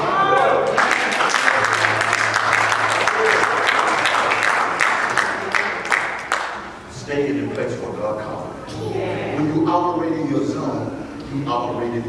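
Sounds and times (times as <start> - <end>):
congregation applauding: 0.0 - 6.9.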